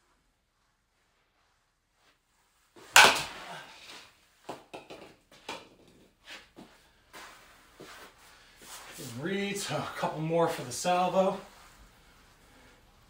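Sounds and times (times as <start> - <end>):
bat cracking a ball: 2.8 - 6.0
balls clicking and knocking: 4.4 - 6.1.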